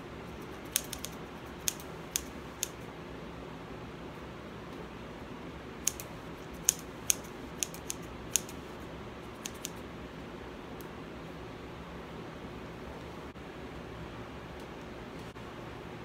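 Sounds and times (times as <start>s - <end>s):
faint room hiss: 0.0s - 16.0s
scissors snipping hair: 0.4s - 2.8s, 5.8s - 9.8s.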